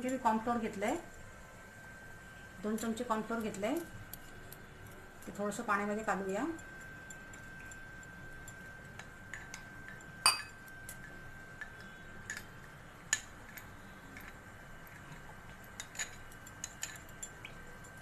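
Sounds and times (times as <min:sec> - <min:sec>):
spoon clinking against glass bowl: 0:02.7 - 0:12.5, 0:14.2 - 0:18.0.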